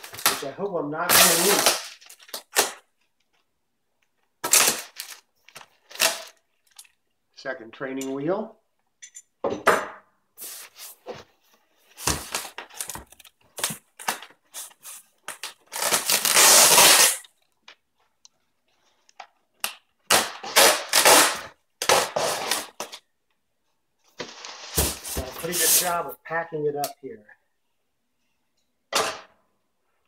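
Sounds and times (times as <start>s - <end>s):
packing tape ripping: 1.1s - 2.9s, 4.4s - 6.4s, 12.0s - 17.4s, 19.6s - 23.0s
tape crumpling: 1.1s - 3.5s, 4.4s - 7.0s, 12.0s - 17.8s.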